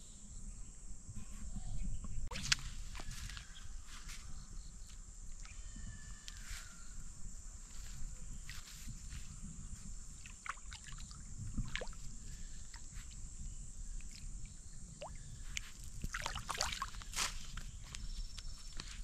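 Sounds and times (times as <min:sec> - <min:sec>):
water splashing and sloshing: 0:10.1 - 0:13.2, 0:15.0 - 0:17.6.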